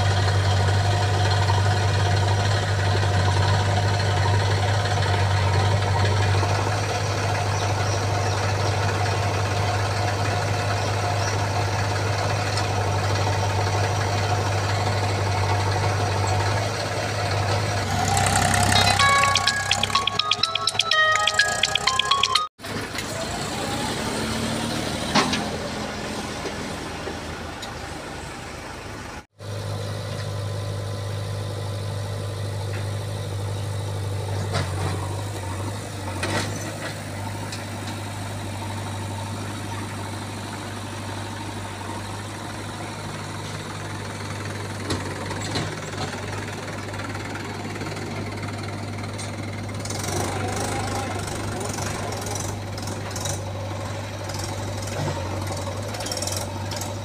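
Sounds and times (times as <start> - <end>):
diesel engines running: 0.0 - 57.0
engine humming at steady pitch: 0.0 - 57.0.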